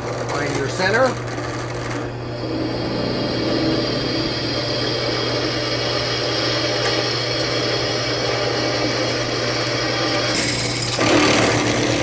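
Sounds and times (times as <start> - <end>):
drill press boring into steel: 3.3 - 12.0.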